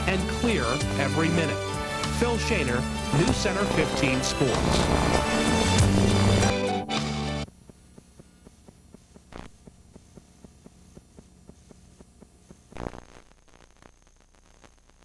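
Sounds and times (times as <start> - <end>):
faint hum: 2.8 - 6.6, 7.5 - 15.0
short noise bursts: 3.0 - 6.6.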